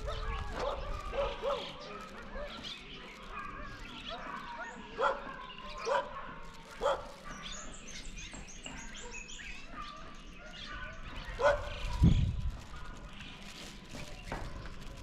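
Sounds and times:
dog barking: 0:00.0 - 0:07.7, 0:09.0 - 0:12.0
bird chirping: 0:00.0 - 0:14.9.

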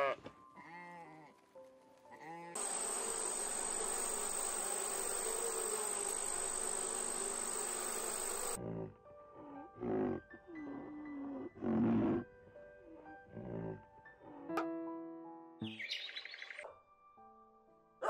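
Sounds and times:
honeybees buzzing: 0:02.6 - 0:08.6.

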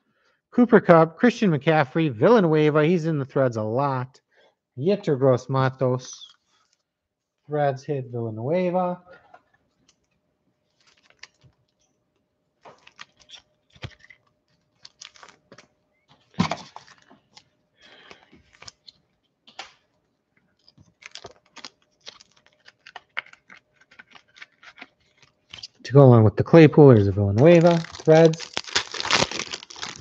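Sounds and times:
faint steady hum: 0:00.0 - 0:30.0
cards and wrappers clicking and crinkling: 0:10.7 - 0:11.9, 0:12.6 - 0:25.8, 0:27.0 - 0:30.0.

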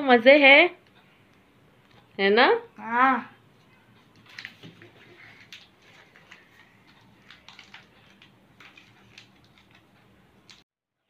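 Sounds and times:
wrapper crackling: 0:04.2 - 0:09.9.

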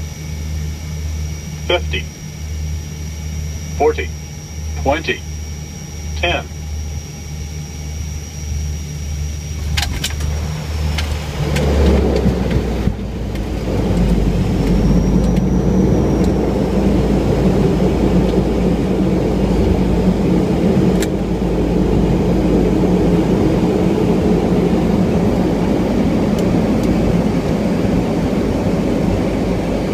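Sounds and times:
turboprop engines rumbling: 0:00.0 - 0:29.9
click: 0:26.4 - 0:27.0.

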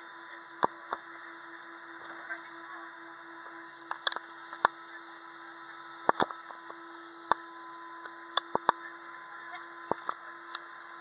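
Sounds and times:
sharp clicks and knocks: 0:06.0 - 0:07.4.

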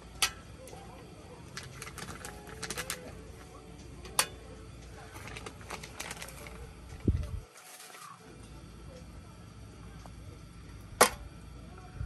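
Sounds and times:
low steady hum: 0:00.0 - 0:12.0
utensils clicking against a pan: 0:01.5 - 0:03.2.

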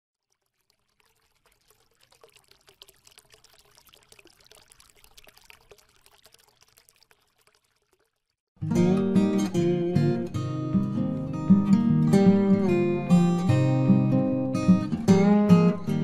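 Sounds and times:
faint water trickling: 0:00.1 - 0:08.5.

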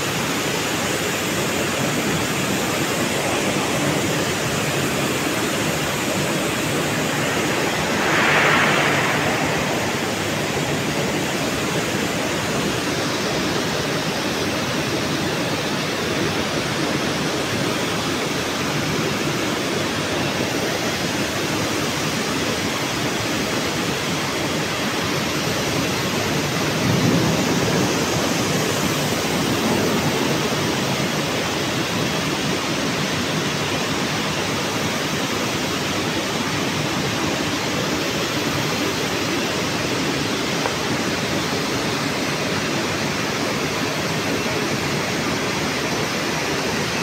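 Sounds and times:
industrial hall rushing noise: 0:02.0 - 0:15.5.

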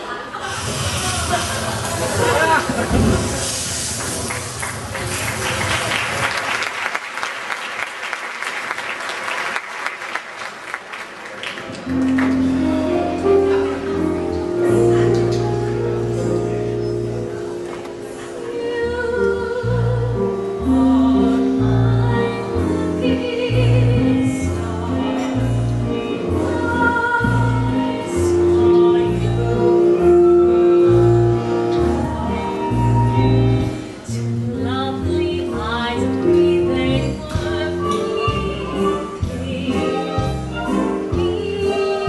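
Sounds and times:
instrumental accompaniment: 0:11.7 - 0:42.0
woman singing: 0:18.3 - 0:42.0.

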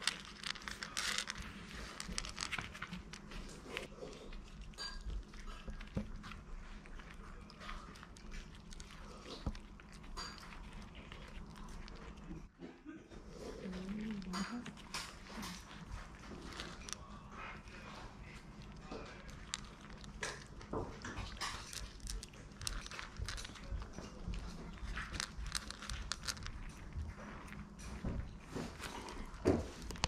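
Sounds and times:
puppies chewing kibble: 0:00.0 - 0:30.0.

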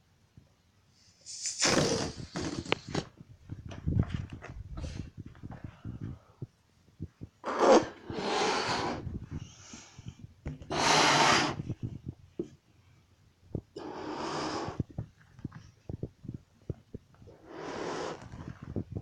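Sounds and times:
ferret hissing: 0:01.2 - 0:03.1, 0:07.4 - 0:09.8, 0:10.7 - 0:11.7, 0:13.8 - 0:14.8, 0:17.4 - 0:18.4.

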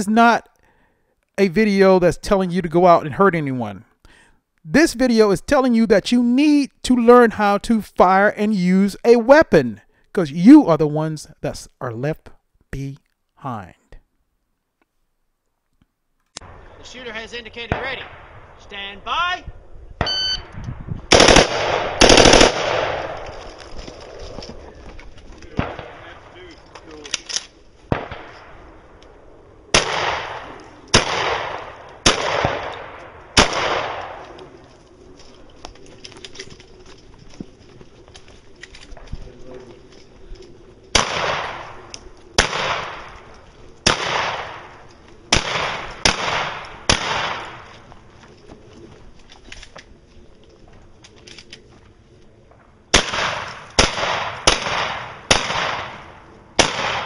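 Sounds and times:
rifle shots echoing: 0:17.6 - 0:18.6, 0:21.1 - 0:23.4, 0:25.5 - 0:26.3, 0:27.9 - 0:28.9, 0:29.7 - 0:34.4, 0:40.9 - 0:47.8, 0:52.9 - 0:57.0
shot timer beep: 0:20.0 - 0:20.5.

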